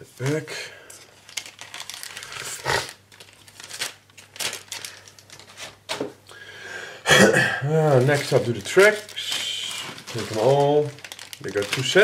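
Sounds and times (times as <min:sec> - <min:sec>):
plastic bag crinkling: 0:01.0 - 0:05.8, 0:07.7 - 0:12.0.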